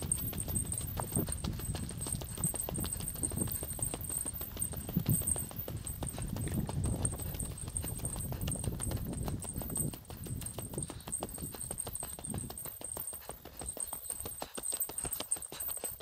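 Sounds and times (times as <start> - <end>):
footsteps crunching on road: 0.0 - 16.0.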